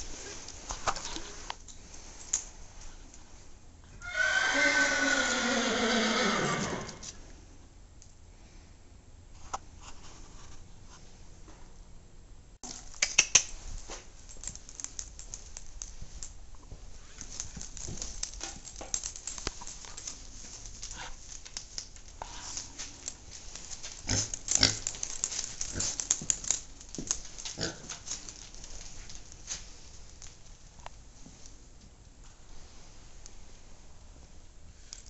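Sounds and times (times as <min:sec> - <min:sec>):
trotters clicking on concrete: 0:12.6 - 0:31.9
pig rustling through straw: 0:19.5 - 0:26.1
pig grunt: 0:27.6 - 0:28.0.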